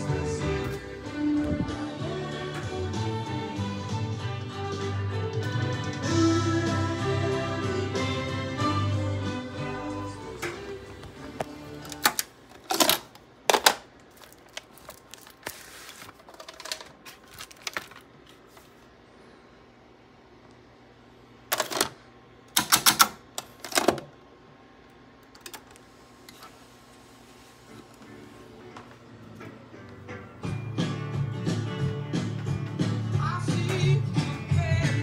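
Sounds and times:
tape music: 0.0s - 12.2s
plastic tape cartridges clacking: 11.4s - 18.1s, 21.5s - 24.1s.

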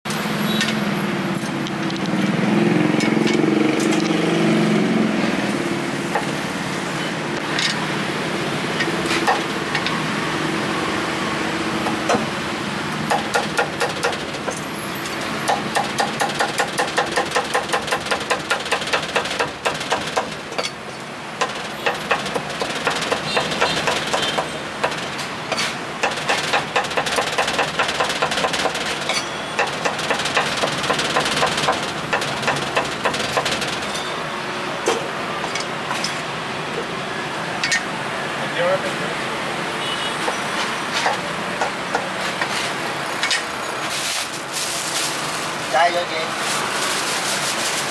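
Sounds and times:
street traffic: 0.0s - 47.9s
cleaver chopping on wooden block: 13.1s - 14.2s.

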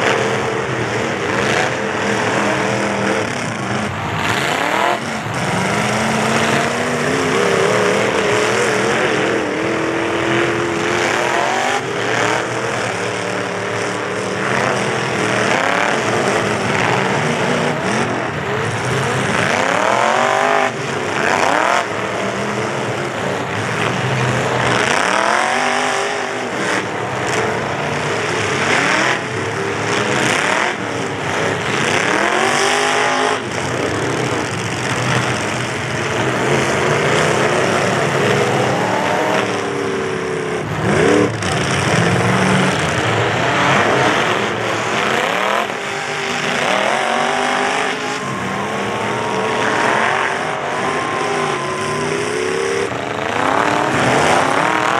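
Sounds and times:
truck engines revving hard: 0.0s - 54.9s.

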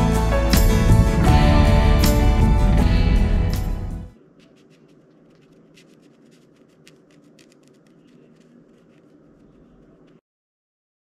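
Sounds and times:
small tool scratching on paper: 4.2s - 10.2s.

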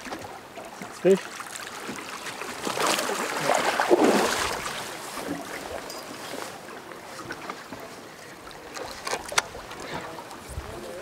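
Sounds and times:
water lapping: 0.0s - 11.0s
fish splashing at surface: 1.4s - 5.7s.

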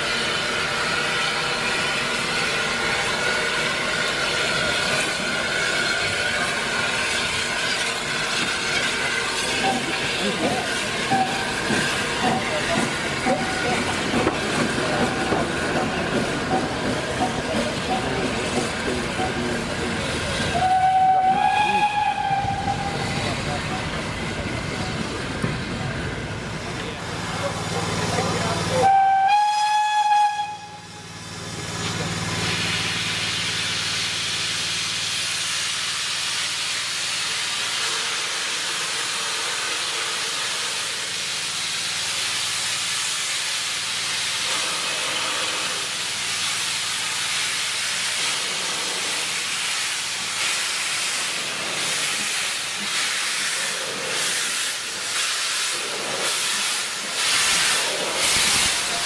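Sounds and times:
hiss of escaping steam: 0.0s - 25.7s, 30.4s - 59.0s
steam locomotive whistle: 11.1s - 11.6s, 20.5s - 23.2s, 28.7s - 31.2s.

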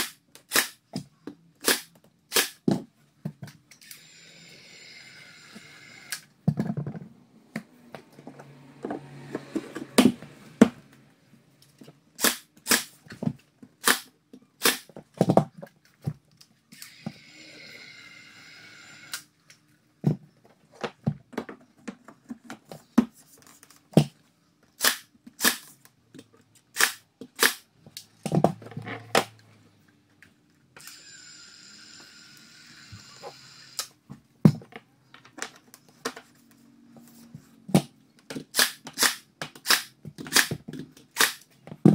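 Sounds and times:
pin nailer firing: 0.0s - 0.8s, 1.6s - 2.6s, 12.2s - 12.9s, 13.8s - 14.9s, 24.8s - 25.7s, 26.8s - 27.6s, 38.5s - 40.6s, 41.2s - 41.4s
caulking gun whirring: 30.8s - 33.9s.

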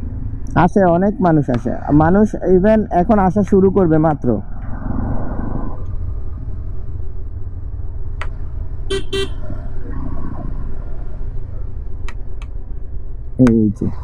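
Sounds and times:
motorcycle engine rumble: 0.0s - 14.0s
vehicle horn beeps: 8.9s - 9.4s.

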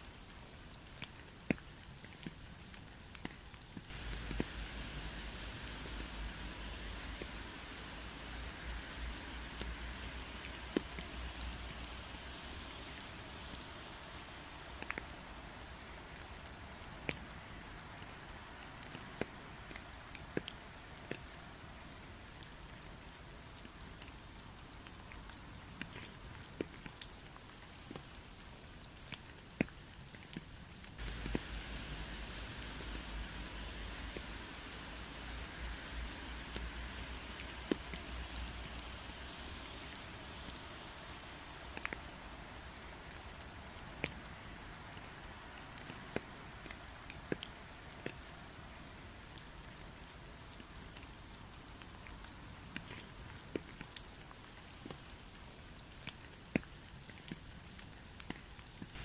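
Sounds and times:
raindrops ticking on a surface: 0.0s - 59.0s
steady rain hissing: 0.0s - 59.0s
faint low rumble: 3.8s - 15.9s, 31.0s - 44.5s.

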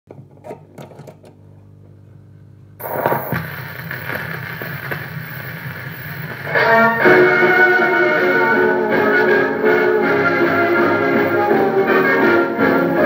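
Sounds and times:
record surface hiss with ticks: 2.8s - 7.6s
low hum: 2.8s - 8.0s
music from record: 2.8s - 13.0s.

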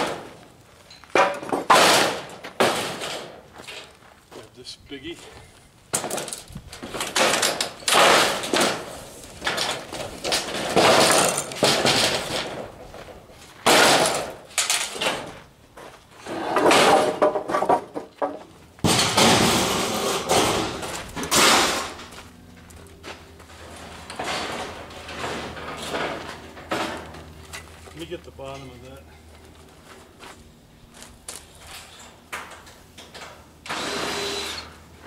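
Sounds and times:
loud clattering crashes: 6.0s - 12.7s, 13.6s - 15.3s, 18.8s - 22.1s
steel roofing sheet rattling: 6.0s - 15.3s.

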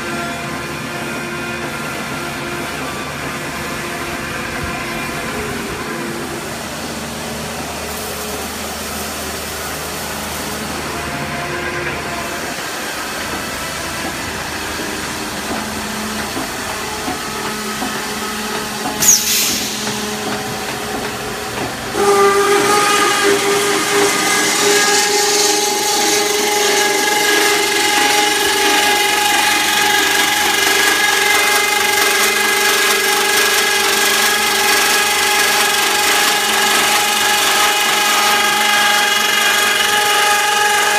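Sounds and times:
machine line humming: 13.9s - 40.9s
bandsaw whine: 16.8s - 40.9s
sharp hiss: 19.0s - 20.3s.

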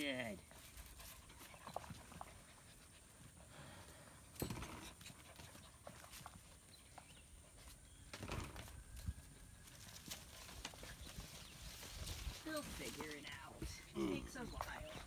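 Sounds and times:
puppy panting: 0.8s - 4.2s, 4.8s - 7.8s.

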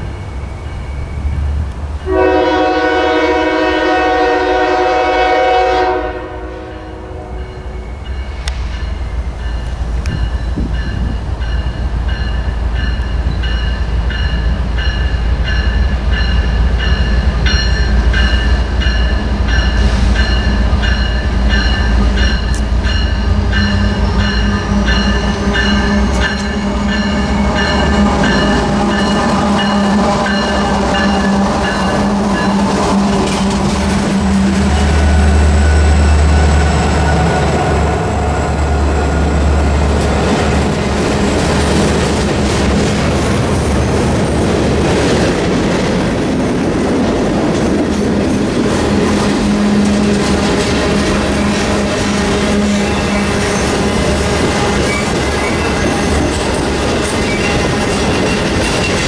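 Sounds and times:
train rumbling: 0.0s - 59.0s
locomotive air horn blast: 2.1s - 7.4s.

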